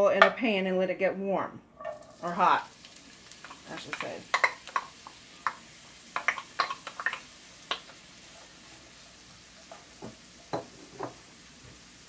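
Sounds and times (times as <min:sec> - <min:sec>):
faint sizzle: 0:01.8 - 0:12.0
wooden spoon knocking pan: 0:03.4 - 0:05.6, 0:06.2 - 0:07.9
plastic cup tapping on pan: 0:10.0 - 0:11.2.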